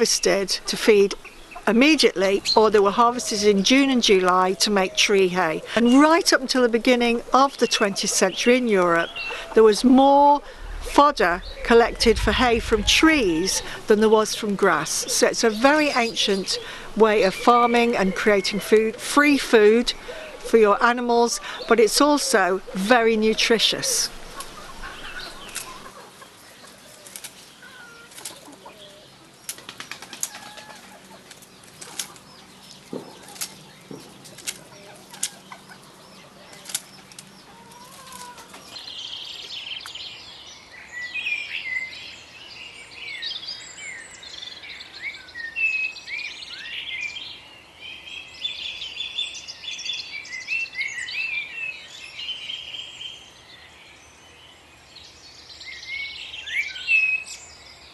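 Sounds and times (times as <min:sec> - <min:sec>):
songbirds chirping: 0:00.0 - 0:57.9
chicken flapping in leafy branches: 0:24.3 - 0:38.9.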